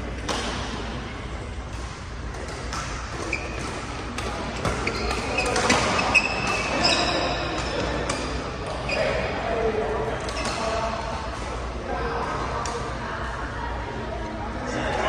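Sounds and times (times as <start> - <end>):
background noise from other courts: 0.0 - 15.0
racket hitting shuttlecock: 0.2 - 8.4
shoes squeaking on court floor: 1.7 - 9.4, 10.3 - 10.8.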